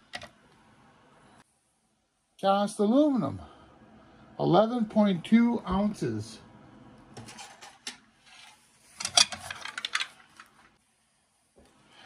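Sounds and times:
scrap parts clinking and rattling: 7.2s - 10.6s.

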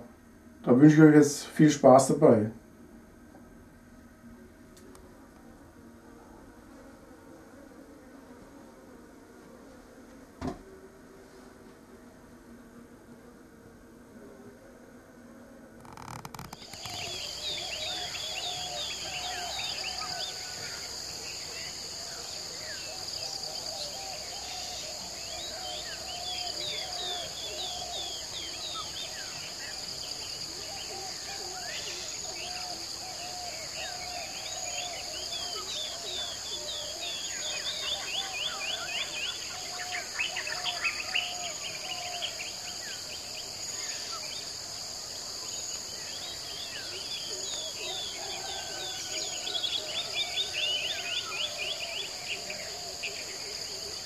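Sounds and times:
insects chirring: 15.6s - 54.0s
birds chirping and singing: 16.3s - 44.6s, 45.6s - 54.0s.

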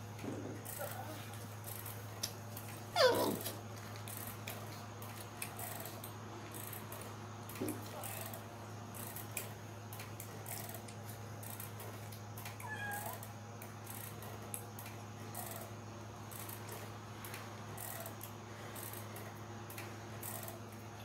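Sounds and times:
steady low hum: 0.0s - 21.0s
kitten mewing: 3.0s - 3.6s.

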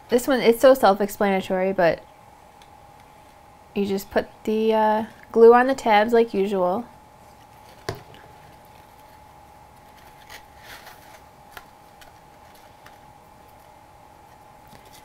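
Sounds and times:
faint steady hum: 0.0s - 15.0s
paper rustling: 9.8s - 13.7s, 14.3s - 15.0s.

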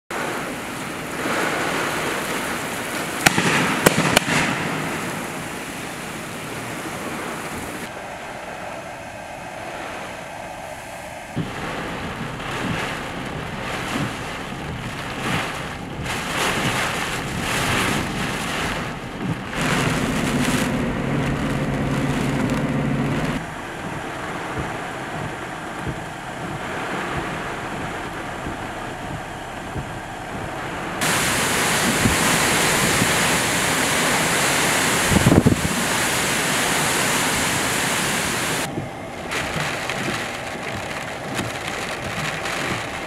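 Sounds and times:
heavy rain: 0.1s - 43.0s
strong wind gusting: 0.1s - 43.0s
sharp cracks: 3.2s - 5.0s
low steady hum: 7.8s - 36.1s, 38.4s - 43.0s.

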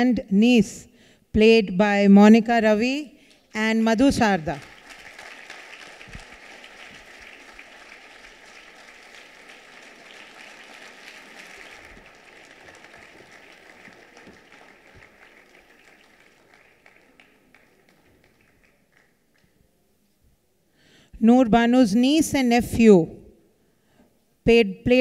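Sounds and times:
audience applauding: 4.5s - 19.6s.

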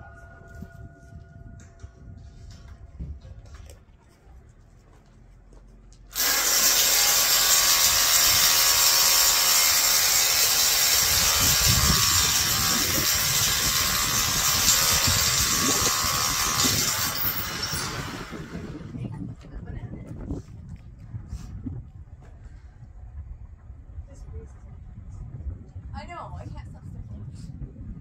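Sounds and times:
hammer drill boring into concrete: 6.1s - 18.7s.

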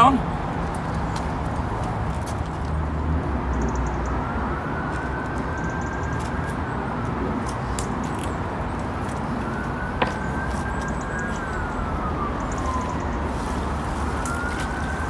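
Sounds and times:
siren wailing: 3.6s - 15.0s.

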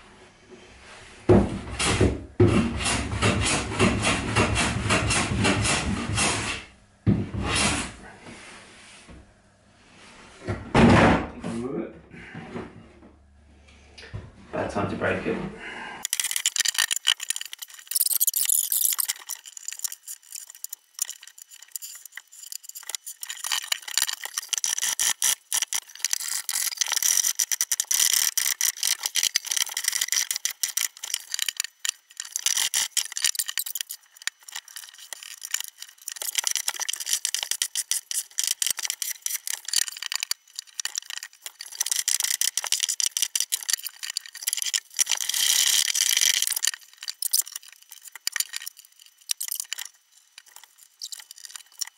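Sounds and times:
hand plane scraping wood: 1.8s - 6.7s.

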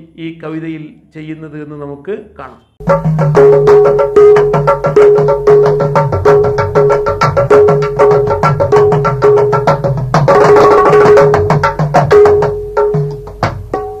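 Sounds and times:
fast hand-drum percussion: 2.8s - 14.0s.

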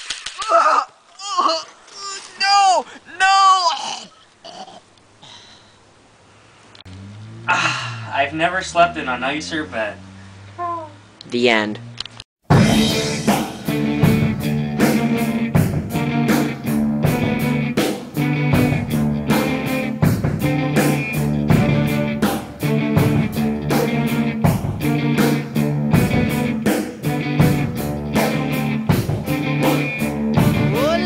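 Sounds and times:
music with drum beat and chords: 12.4s - 31.0s.

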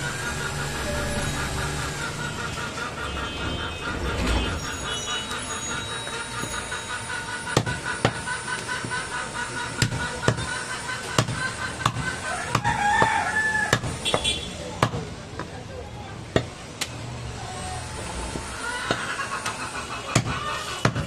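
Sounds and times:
cleaver chopping on wooden block: 7.6s - 8.2s, 9.8s - 10.5s, 11.2s - 15.5s, 20.2s - 21.0s.

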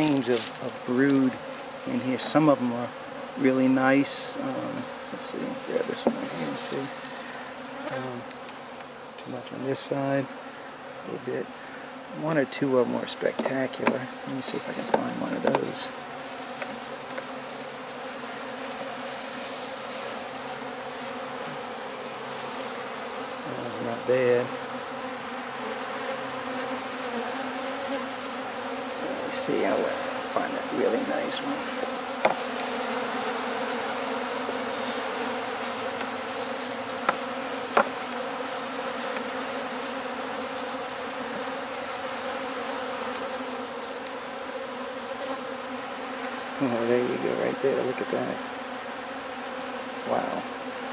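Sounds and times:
bees buzzing: 0.0s - 50.9s
wooden frames knocking: 6.0s - 6.3s, 13.3s - 14.1s, 14.7s - 15.8s, 32.2s - 32.4s, 37.0s - 38.0s.

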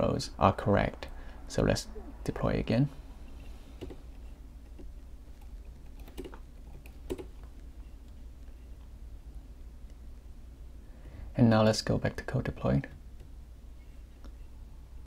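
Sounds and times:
faint low hum: 0.0s - 15.0s
computer keyboard typing: 4.6s - 8.2s.

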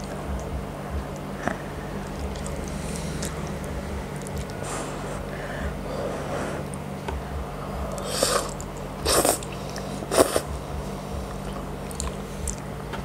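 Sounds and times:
slurping spaghetti: 8.0s - 10.5s.

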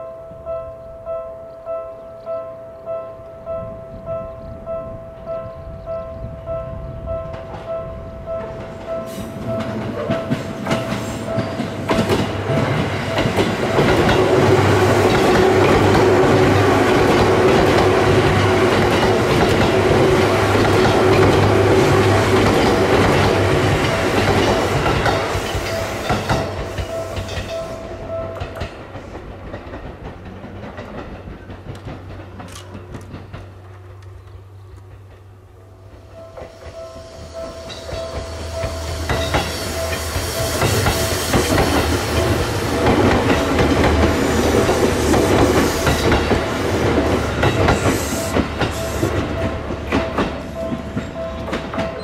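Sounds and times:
train wheels clacking over joints: 8.4s - 52.0s
level-crossing bell ringing: 36.0s - 42.6s, 48.4s - 52.0s.

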